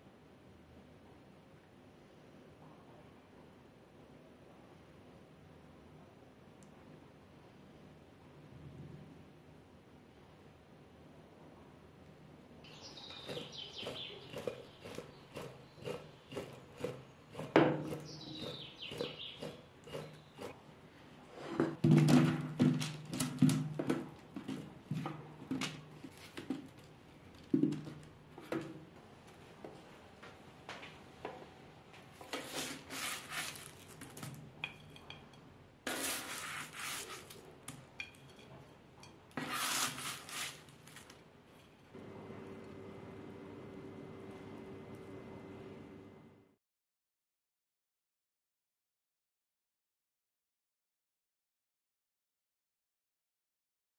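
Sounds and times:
spatula scraping parchment paper: 13.0 - 20.6, 32.3 - 34.3, 35.9 - 37.5, 39.4 - 41.6.

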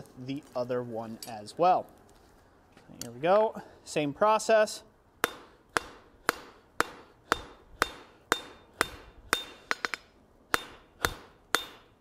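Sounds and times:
hammer striking steel on anvil: 5.2 - 12.0.

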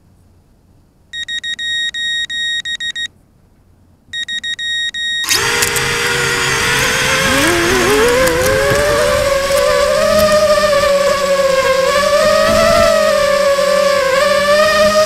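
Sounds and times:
high-pitched beeps: 1.2 - 3.1, 4.2 - 5.4
drone motors whining: 5.2 - 15.0.

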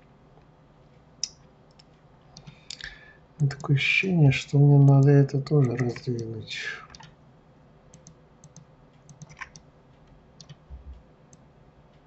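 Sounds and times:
computer mouse and keyboard clicks: 4.8 - 6.3, 6.9 - 7.2, 7.9 - 11.4.

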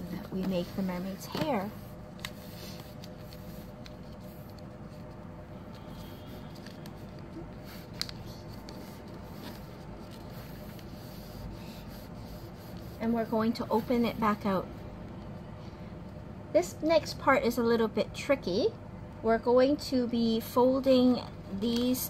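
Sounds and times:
low room hum: 0.0 - 22.0
paper folding and creasing: 0.3 - 13.0.

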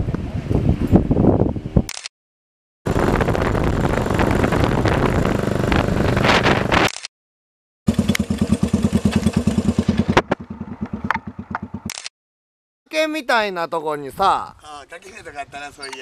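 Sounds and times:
wind rush: 0.0 - 1.9, 2.9 - 6.9
sharp clicks: 1.9 - 2.1, 6.8 - 7.1, 11.1 - 12.1
motorcycle engine running: 2.9 - 6.9, 7.9 - 11.9
motorcycle engines idling: 7.9 - 11.9.

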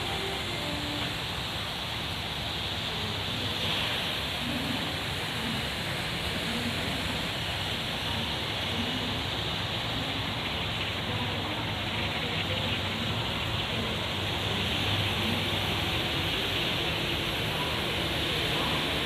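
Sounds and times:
train rushing noise: 0.0 - 19.0.

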